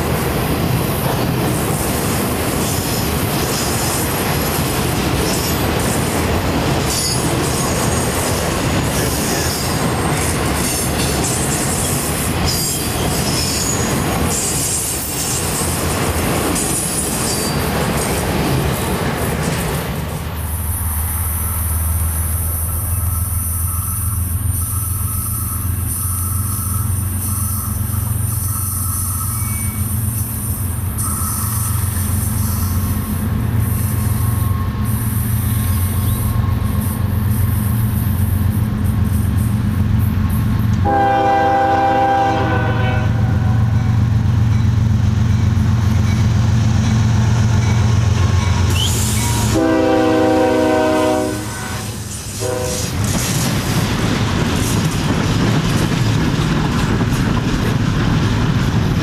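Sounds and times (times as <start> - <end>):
diesel locomotive droning: 0.0 - 59.0
train cars clacking over rails: 0.0 - 59.0
train air horn blasts: 40.8 - 44.0, 48.6 - 53.0.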